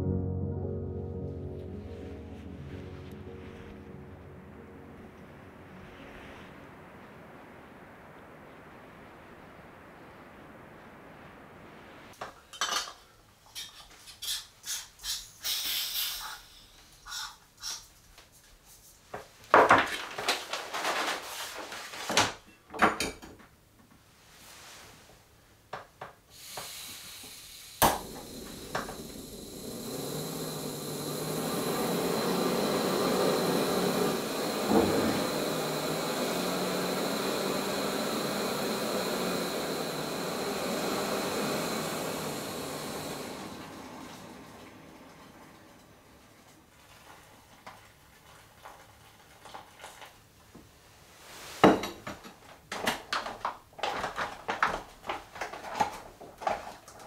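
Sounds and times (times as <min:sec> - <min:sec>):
camp stove burner hissing: 0:13.6 - 0:17.9, 0:26.3 - 0:46.6.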